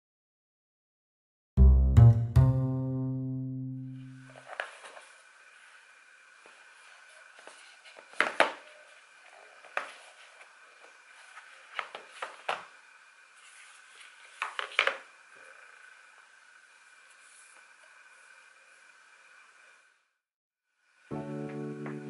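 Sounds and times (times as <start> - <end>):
faint high hum: 3.0 - 14.4.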